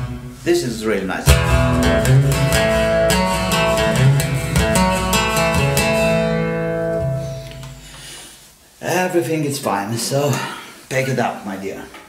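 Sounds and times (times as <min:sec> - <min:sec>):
guitar strumming chords: 0:00.0 - 0:08.3.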